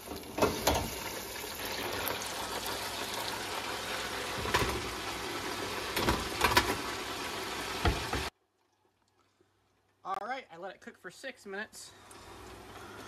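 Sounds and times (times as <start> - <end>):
fish sizzling in deep fryer: 0.0 - 8.4, 12.0 - 13.0.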